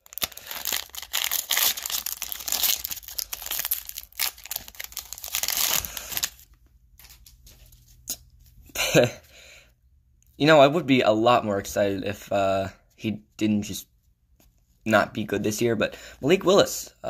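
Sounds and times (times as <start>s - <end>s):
foil wrapper tearing and crinkling: 0.0s - 7.3s.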